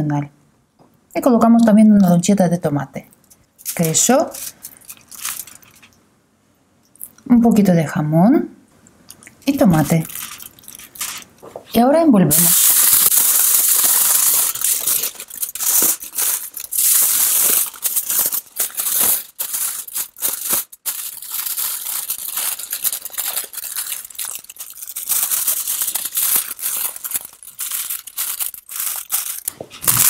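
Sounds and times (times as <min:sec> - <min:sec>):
kitchen foil crinkling: 0:03.6 - 0:06.0, 0:09.5 - 0:30.0.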